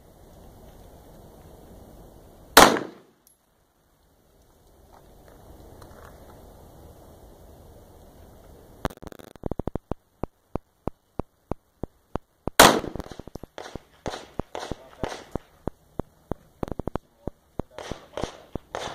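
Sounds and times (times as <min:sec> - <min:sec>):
handgun shots: 0:02.6 - 0:03.1, 0:12.6 - 0:15.4.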